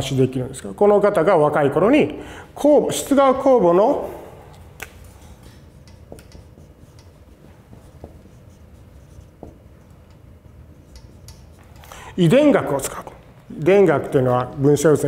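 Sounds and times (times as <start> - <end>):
low room hum: 0.0 - 15.0
marker squeaking on whiteboard: 5.4 - 11.8.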